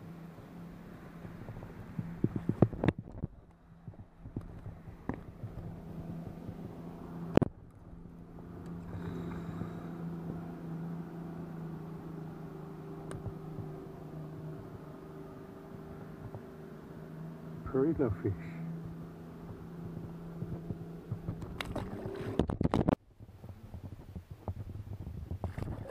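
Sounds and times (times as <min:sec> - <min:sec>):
boat motor humming: 0:00.0 - 0:25.9.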